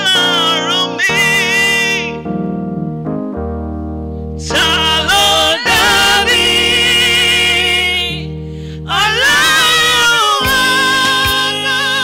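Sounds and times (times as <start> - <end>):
man singing gospel: 0.0 - 2.3, 4.4 - 12.0
sustained keyboard chords: 0.0 - 12.0
women backing singers: 4.5 - 8.2, 8.9 - 12.0.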